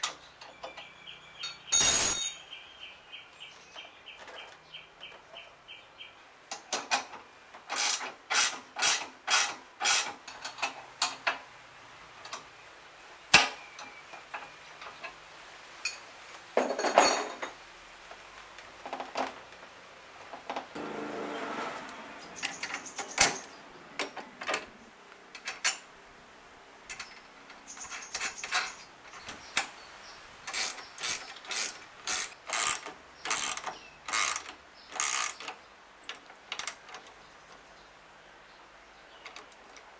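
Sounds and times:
clatter of metal parts: 1.5 - 2.5, 16.6 - 17.6, 27.8 - 29.7
ratchet wrench clicking: 30.5 - 35.5.

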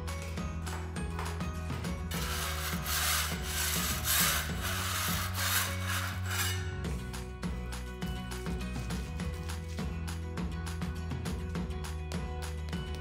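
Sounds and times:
background music with steady beat: 0.0 - 13.0
hammer scraping plaster off wall: 2.1 - 7.0.

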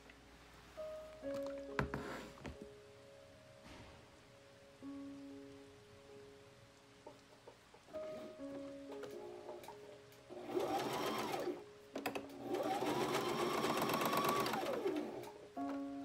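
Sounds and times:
quiet background music: 0.0 - 16.0
sewing machine stitching: 10.3 - 15.4.

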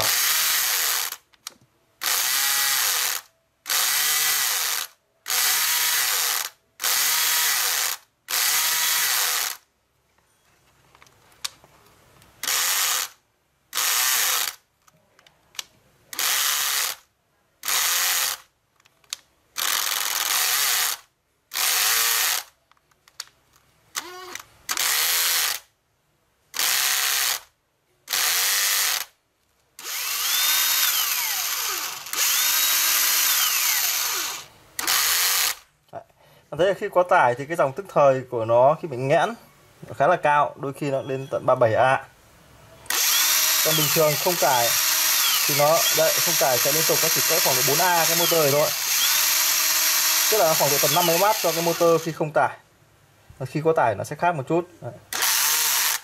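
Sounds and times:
cordless drill spinning up: 0.0 - 1.2, 2.0 - 9.6, 12.4 - 13.2, 13.8 - 14.6, 16.2 - 17.0, 17.6 - 18.4, 19.6 - 22.5, 24.0 - 25.6, 26.6 - 27.4, 28.1 - 29.1, 29.8 - 35.6, 42.9 - 52.2, 55.1 - 56.0.

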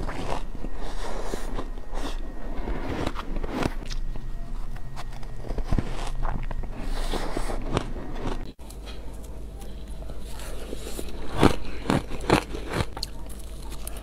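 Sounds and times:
crunching shaved ice: 7.6 - 14.0.

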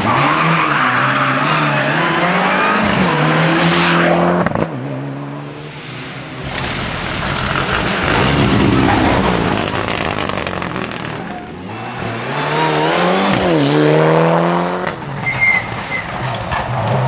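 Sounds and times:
rally car passing: 1.6 - 17.0
engine revving: 6.4 - 15.0.

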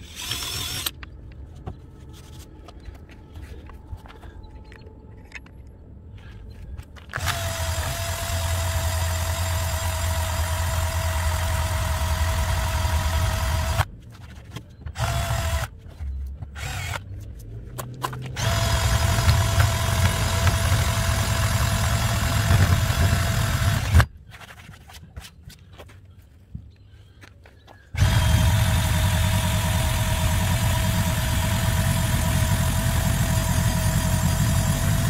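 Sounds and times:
drill whining: 0.0 - 1.0, 7.1 - 13.9, 15.0 - 15.7, 16.6 - 17.0, 18.4 - 24.1, 28.0 - 35.0.

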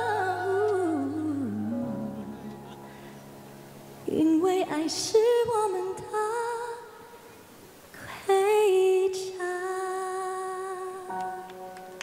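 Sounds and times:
woman singing into microphone: 0.0 - 2.4, 4.0 - 7.2, 7.9 - 11.4.

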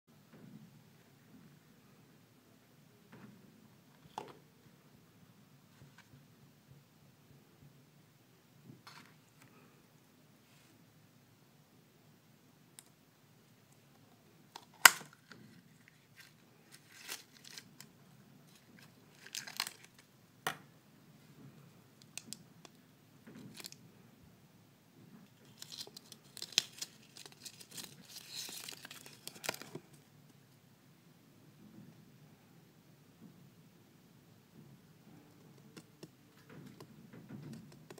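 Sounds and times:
plastic wrapper crinkling and tearing: 14.6 - 17.9, 18.5 - 20.1, 25.4 - 30.0.

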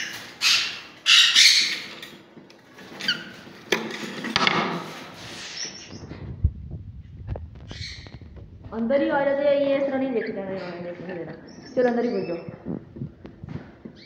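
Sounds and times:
parrot chirps: 0.0 - 2.0
parrots squawking: 0.0 - 2.2, 5.3 - 6.0, 7.6 - 8.2, 9.8 - 12.6
wooden knocks: 3.7 - 4.8.

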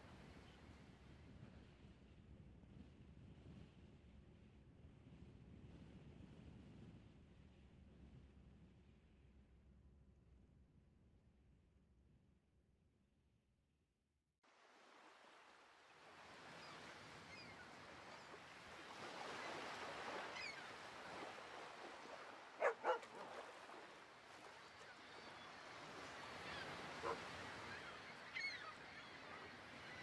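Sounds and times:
animal yelps: 22.6 - 23.0, 27.0 - 27.3.

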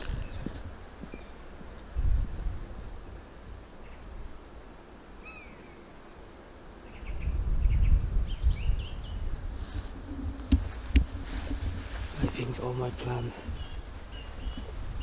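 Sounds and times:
small birds chirping: 0.0 - 1.7, 5.2 - 5.9, 6.8 - 9.4, 12.2 - 15.0
low rumble on microphone: 1.9 - 3.3, 7.0 - 15.0.

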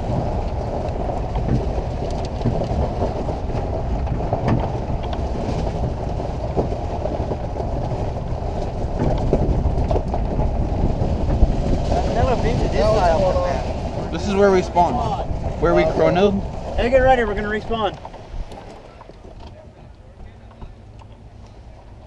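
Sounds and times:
knocks and rattles from truck bed: 0.0 - 12.0
truck tyres and engine rumbling: 0.0 - 22.0
tyres on gravel: 0.0 - 22.0
wind buffeting microphone: 0.0 - 22.0.

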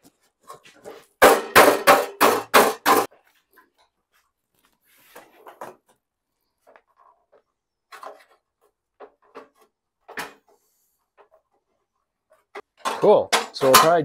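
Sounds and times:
scraping rustle: 3.1 - 7.3.

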